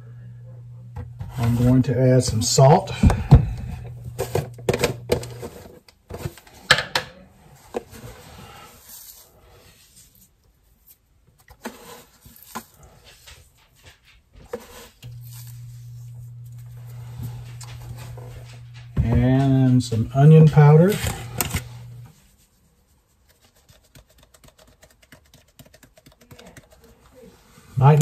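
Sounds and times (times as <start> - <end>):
low steady hum: 0.0 - 5.7, 14.9 - 22.5.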